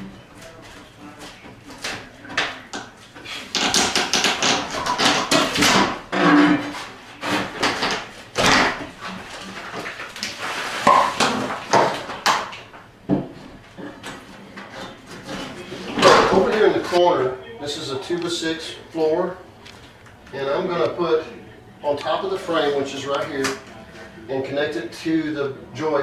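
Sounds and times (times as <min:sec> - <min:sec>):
wooden boards knocking and scraping: 0:03.5 - 0:12.5.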